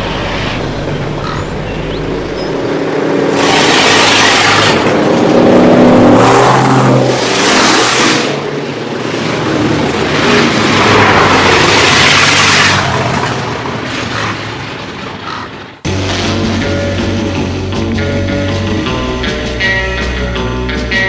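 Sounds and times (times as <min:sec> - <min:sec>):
hot rods passing by: 0:00.0 - 0:19.0
rock music: 0:15.9 - 0:21.0.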